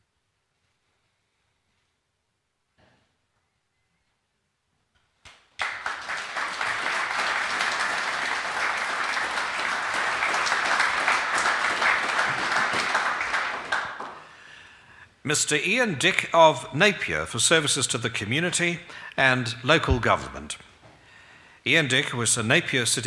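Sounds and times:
audience applause: 0:05.6 - 0:14.5.

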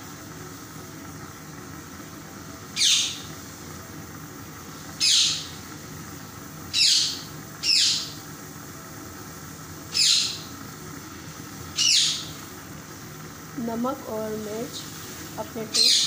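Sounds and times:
bird short high falling calls: 0:09.9 - 0:10.5.

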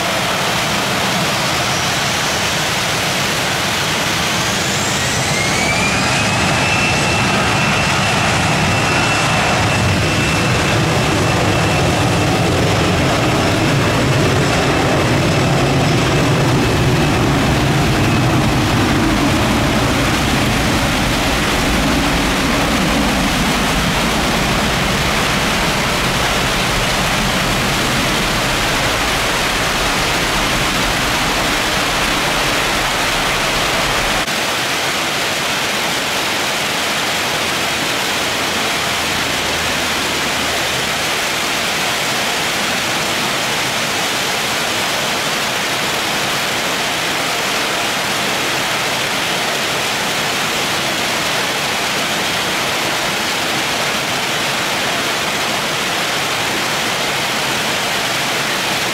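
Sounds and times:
low jet engine rumble: 0:00.0 - 0:58.9
heavy rain pouring: 0:12.0 - 0:41.7.

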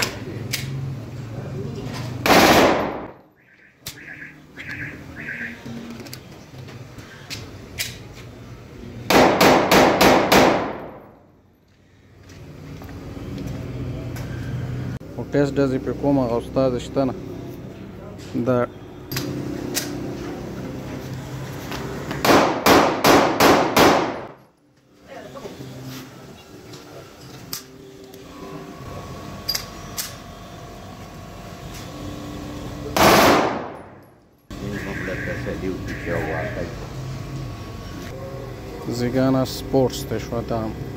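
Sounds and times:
pistol shots echoing: 0:02.2 - 0:03.1, 0:09.1 - 0:11.0, 0:22.2 - 0:24.4, 0:33.0 - 0:34.0.

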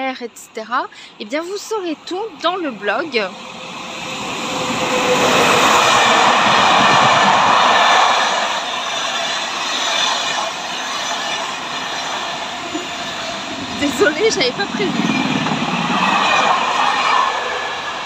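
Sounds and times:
train rushing rumble: 0:00.7 - 0:18.0.

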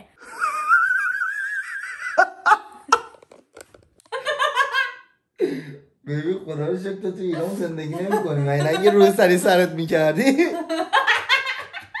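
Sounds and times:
woman laughing: 0:00.2 - 0:03.3, 0:04.1 - 0:05.1, 0:07.3 - 0:09.3, 0:10.5 - 0:12.0.

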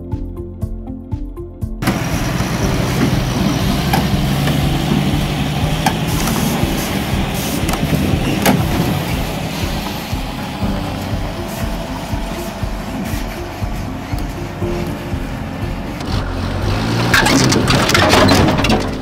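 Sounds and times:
diesel truck engine rumble: 0:01.8 - 0:19.0.

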